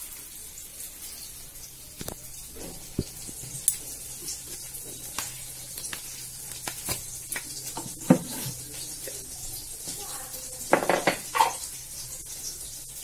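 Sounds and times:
hot oil sizzling: 0.0s - 13.0s
spices clicking in oil: 1.0s - 10.0s
utensil knocking: 6.6s - 8.6s, 10.7s - 11.6s.

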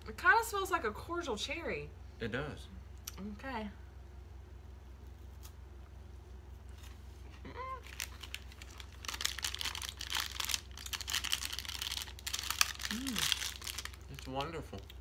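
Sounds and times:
steady low hum: 0.0s - 15.0s
person humming: 7.4s - 7.9s, 12.9s - 13.3s
snack wrapper crinkling: 7.8s - 15.0s.

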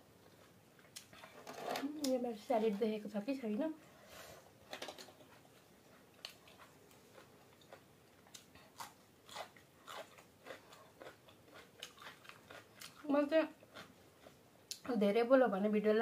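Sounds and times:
crunchy chewing of cucumber: 5.3s - 14.8s.

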